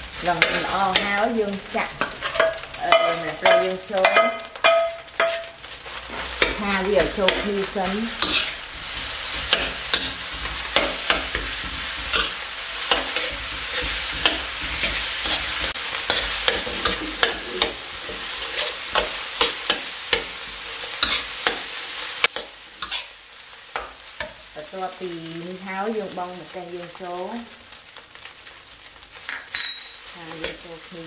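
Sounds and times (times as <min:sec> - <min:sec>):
rice sizzling in a wok: 0:00.0 - 0:31.0
spatula clinking and scraping pan: 0:00.3 - 0:24.4.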